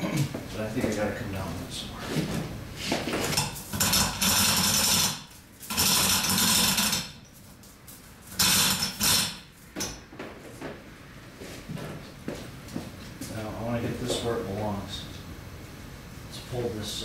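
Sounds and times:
metal chain rattling through hoist: 3.3s - 7.4s, 8.3s - 9.4s.

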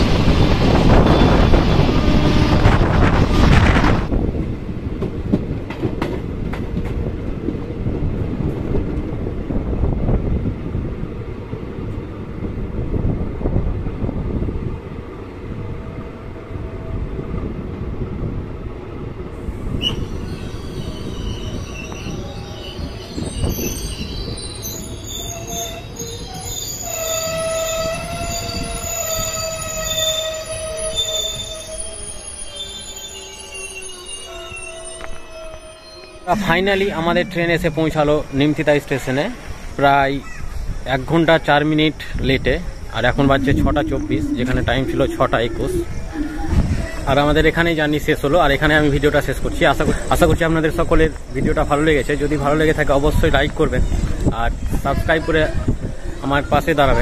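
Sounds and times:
train rumble with wheel clacks: 0.0s - 57.0s
high metallic brake squealing: 19.7s - 57.0s.

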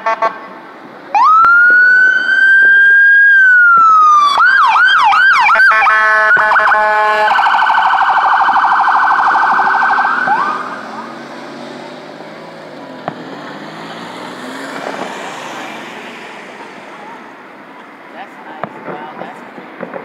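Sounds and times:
ambulance siren: 1.1s - 11.2s.

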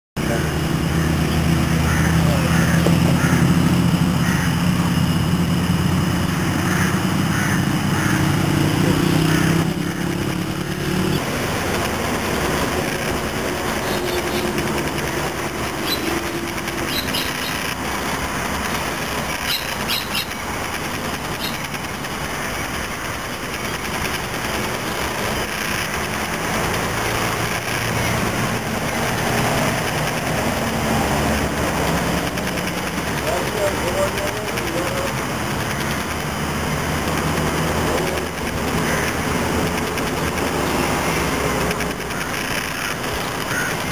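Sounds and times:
vehicle engine humming: 0.2s - 43.9s
high bird chirps: 13.8s - 14.6s, 15.7s - 17.7s, 19.4s - 20.5s, 21.3s - 21.7s.

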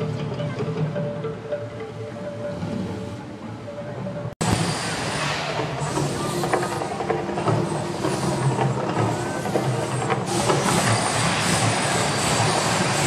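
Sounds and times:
hiss: 4.4s - 13.0s.

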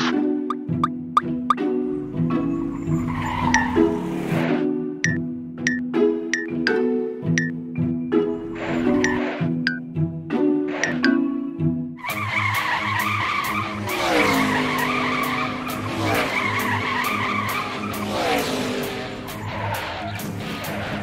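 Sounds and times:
car engines running: 0.5s - 5.8s, 12.0s - 21.0s
background music with steady beat: 5.0s - 8.4s
tyres squealing: 12.1s - 21.0s.

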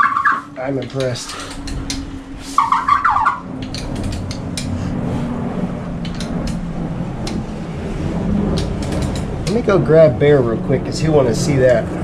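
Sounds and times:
steady low hum: 0.0s - 12.0s
wrench and valvetrain clicks: 0.8s - 2.1s, 3.6s - 4.8s, 6.0s - 6.6s, 8.5s - 9.6s.

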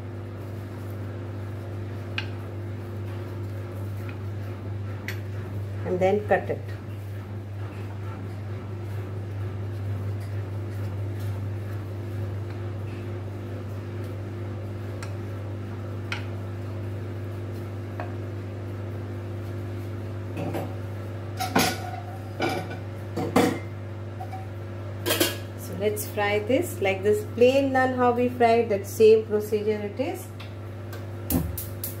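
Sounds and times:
steady low hum: 0.0s - 32.0s
rolling pin rolling dough: 0.4s - 20.0s.

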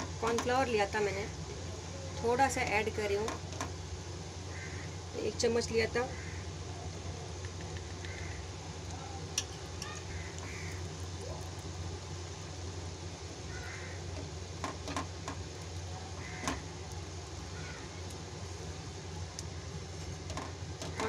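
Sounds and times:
steady low hum: 0.0s - 21.0s
spatula knocking pan: 16.3s - 16.7s.

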